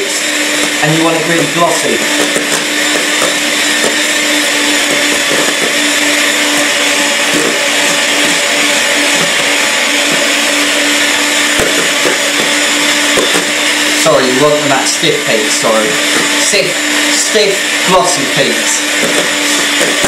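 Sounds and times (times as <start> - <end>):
electric hand mixer whirring: 0.0 - 20.0.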